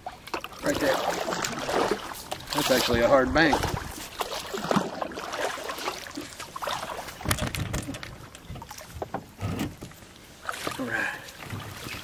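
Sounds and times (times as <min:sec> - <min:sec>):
paddle splashing in water: 0:00.0 - 0:12.0
knocks on canoe: 0:07.2 - 0:07.9.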